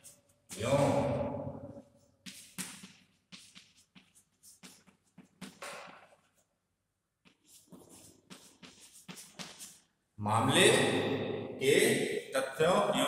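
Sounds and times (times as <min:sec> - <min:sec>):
chalk scratching on blackboard: 0:00.0 - 0:00.6, 0:02.3 - 0:05.6, 0:07.3 - 0:09.9.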